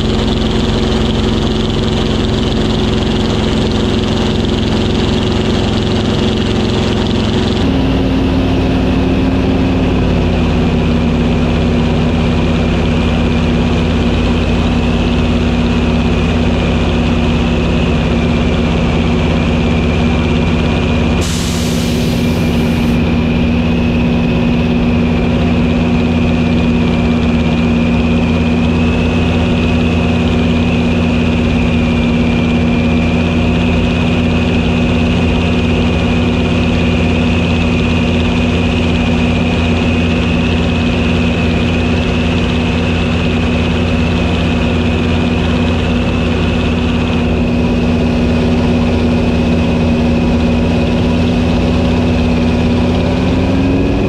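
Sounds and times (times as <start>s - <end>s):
aircraft engine drone: 0.0s - 54.0s
high hiss: 21.2s - 23.0s
airflow noise: 21.2s - 25.9s.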